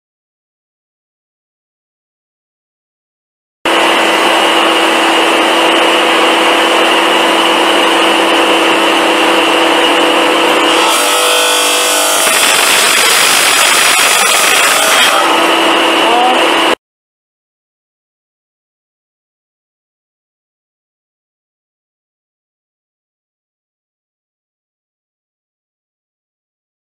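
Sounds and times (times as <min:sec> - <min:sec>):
cutting machine whine: 0:03.7 - 0:16.8
blade cutting rubber hose: 0:09.8 - 0:16.8.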